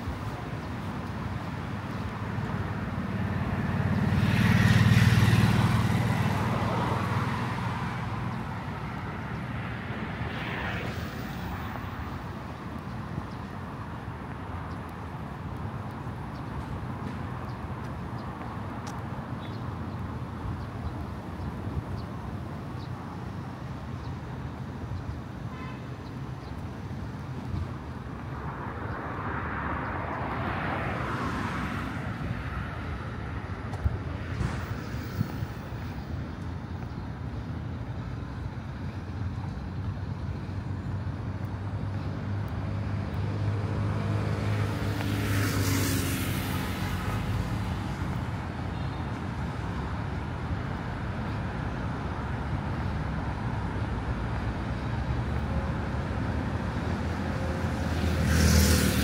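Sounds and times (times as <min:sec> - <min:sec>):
passing cars rumbling: 0:00.0 - 0:23.8, 0:26.4 - 0:59.0.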